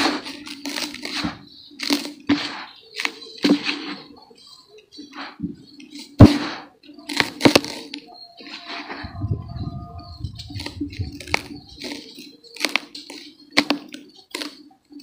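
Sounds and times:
hands crumbling dry dirt: 0.0 - 4.1, 5.1 - 14.6.

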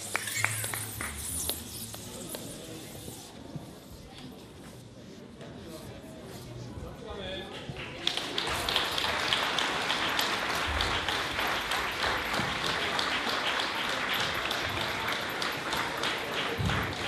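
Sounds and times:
crowd applause: 7.8 - 17.0.

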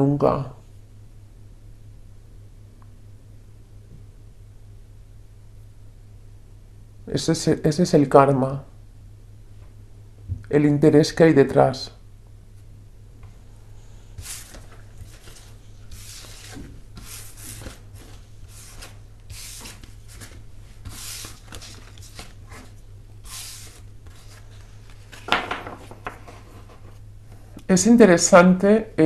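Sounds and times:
steady low hum: 0.0 - 29.0
soft rubbing strokes: 13.3 - 25.3, 26.2 - 27.1.

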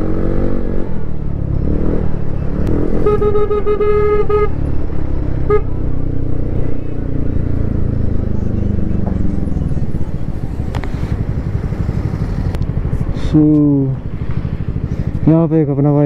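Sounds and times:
scooter engine and road noise: 0.0 - 16.0
vehicle horn: 2.9 - 4.6, 5.4 - 5.8.

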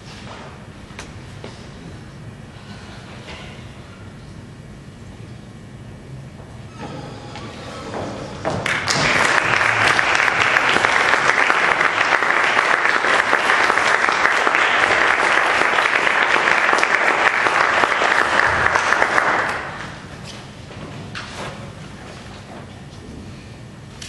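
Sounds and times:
audience clapping: 8.4 - 20.1.

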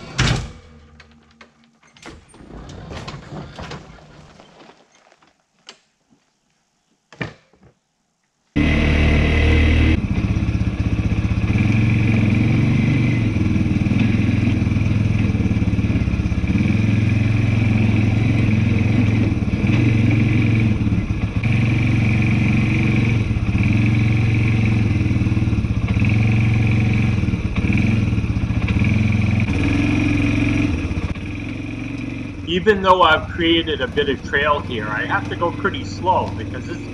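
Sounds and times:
quad bike engine revving: 8.6 - 36.9.

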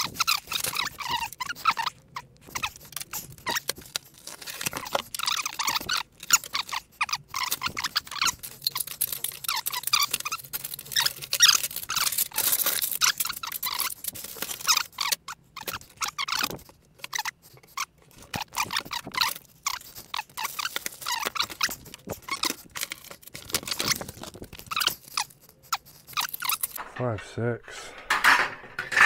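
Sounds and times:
metal shelf parts knocking: 26.8 - 29.0.

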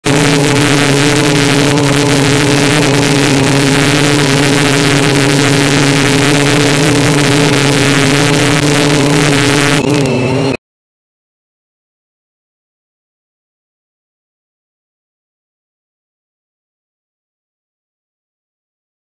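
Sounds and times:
drone motors and propellers humming: 0.0 - 10.6.

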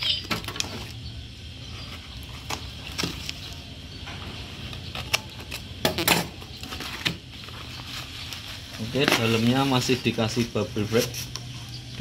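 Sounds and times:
cardboard crinkling: 6.6 - 11.4.

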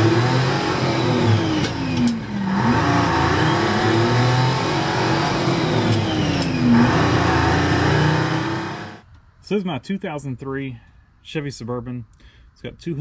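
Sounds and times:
truck engine from inside cab: 0.0 - 9.0.

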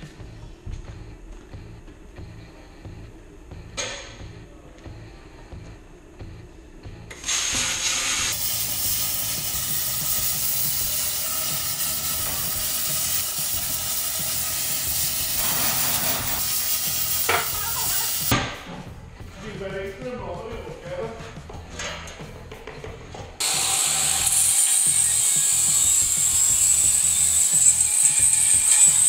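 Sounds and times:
plasma cutter hissing: 7.2 - 18.3.

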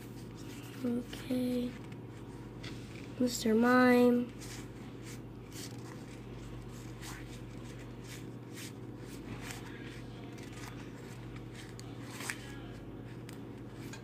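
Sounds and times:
steady low hum: 0.0 - 14.0
cards rustling and flicking: 4.2 - 14.0.

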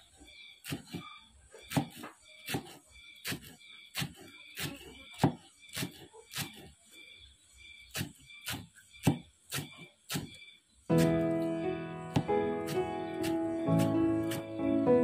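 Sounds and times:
knife chopping on wooden board: 1.7 - 6.7, 7.9 - 10.3, 12.1 - 14.5.

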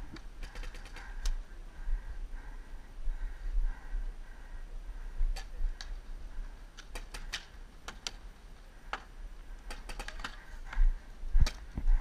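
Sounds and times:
paintball markers firing: 0.4 - 1.3, 6.8 - 8.3, 8.9 - 10.5.

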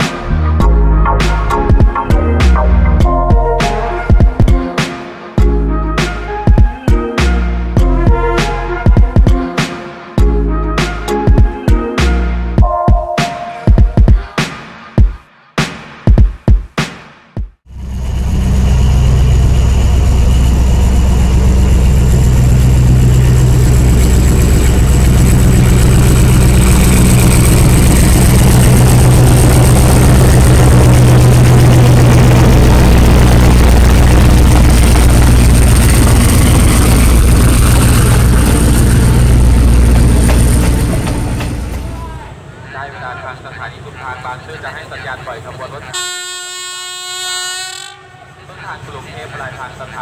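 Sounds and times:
locomotive engine drone: 0.0 - 4.2, 17.7 - 50.0
coaches rolling on track: 23.0 - 45.9.

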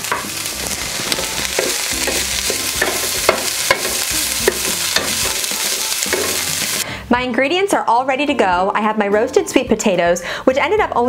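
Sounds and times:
greens sizzling in oil: 0.0 - 6.8
utensil clicking against pan: 1.0 - 6.5.

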